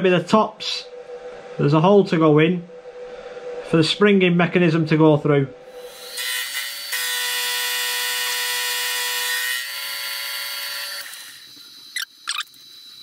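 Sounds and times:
face mill cutting steel: 5.7s - 11.5s.

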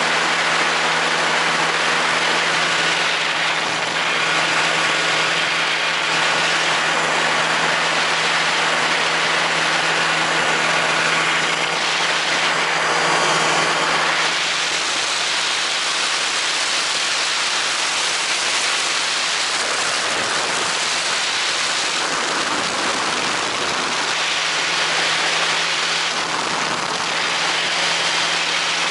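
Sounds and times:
engine and propeller drone: 0.0s - 28.9s
rush of wind: 0.0s - 28.9s.

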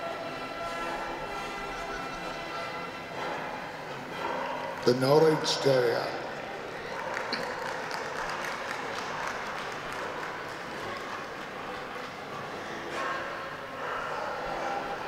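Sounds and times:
crowd noise: 0.0s - 15.0s
spectators clapping: 4.5s - 13.6s.

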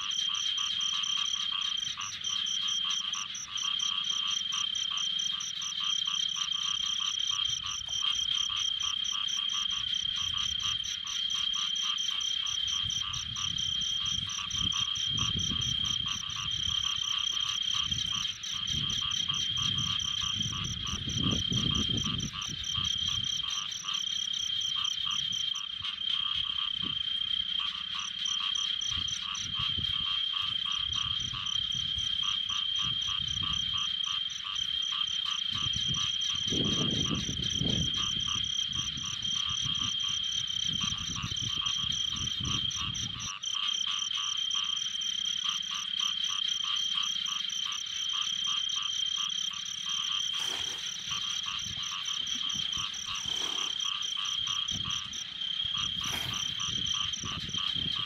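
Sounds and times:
frogs calling: 0.0s - 58.0s
hoe sloshing through pond mud: 50.0s - 56.7s.

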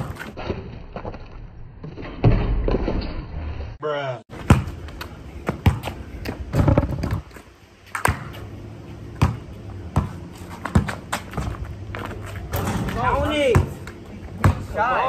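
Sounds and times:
basketball bouncing on concrete: 4.3s - 7.3s, 7.9s - 8.5s, 9.1s - 15.0s.

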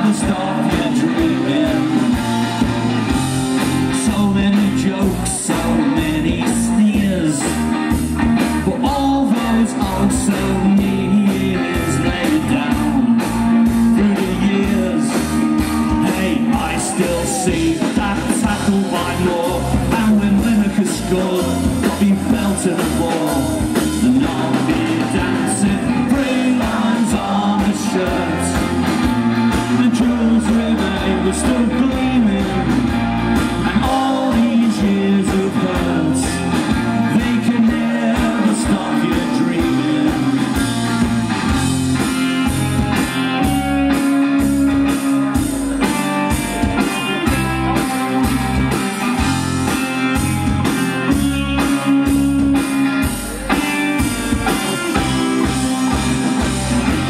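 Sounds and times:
person singing: 0.0s - 2.5s, 3.8s - 7.7s, 8.6s - 28.8s, 29.6s - 40.7s
live rock band playing: 0.0s - 57.0s.

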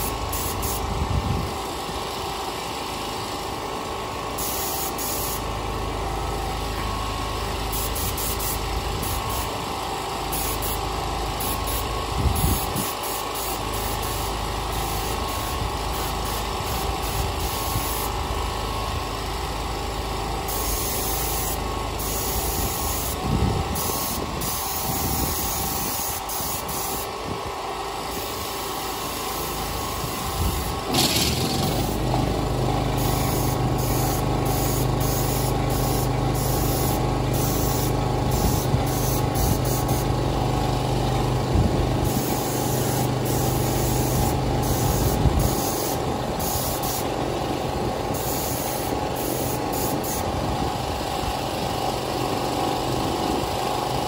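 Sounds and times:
air compressor running: 0.0s - 54.0s
paint spray gun hissing: 0.0s - 54.0s.

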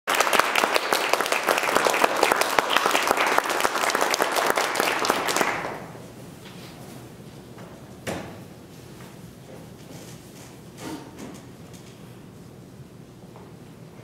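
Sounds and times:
audience applauding: 0.1s - 6.0s.

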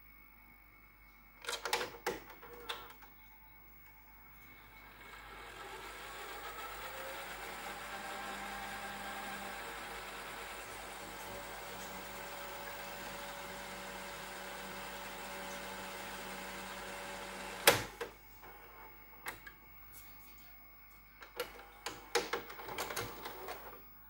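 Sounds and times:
video recorder rewinding whir: 4.4s - 19.4s, 21.2s - 23.8s.

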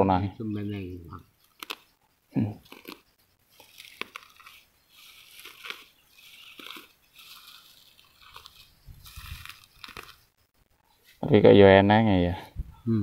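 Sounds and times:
straw snapping: 1.4s - 1.9s, 2.6s - 10.2s
straw rustling and crackling: 1.4s - 11.2s.

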